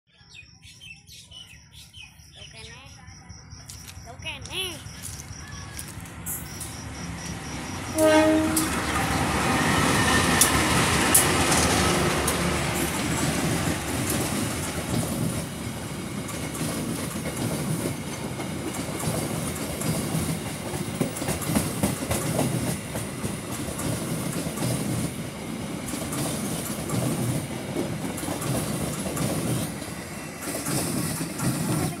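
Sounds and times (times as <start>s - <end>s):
diesel locomotive passing: 3.6s - 32.0s
train horn blast: 7.8s - 10.5s
train wheels clattering on rail joints: 8.0s - 32.0s.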